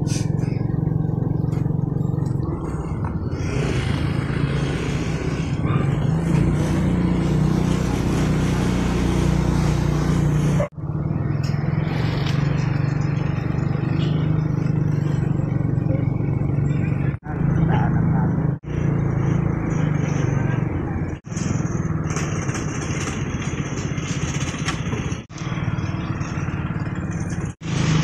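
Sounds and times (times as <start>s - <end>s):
motorcycle engine running: 0.0s - 28.0s
wind and road noise: 0.0s - 28.0s.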